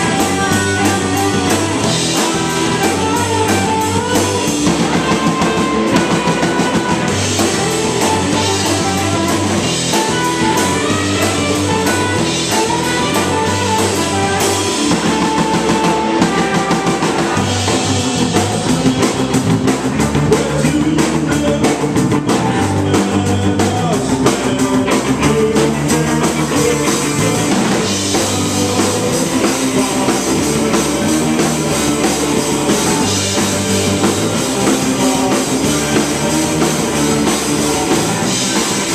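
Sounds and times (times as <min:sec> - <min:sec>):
bass guitar: 0:00.0 - 0:38.9
drum kit with cymbals: 0:00.0 - 0:38.9
electric guitar: 0:00.0 - 0:38.9.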